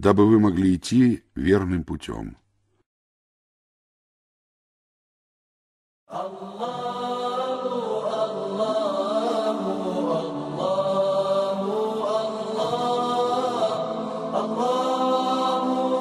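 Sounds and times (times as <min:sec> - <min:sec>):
a cappella vocal chant: 0:06.1 - 0:16.0.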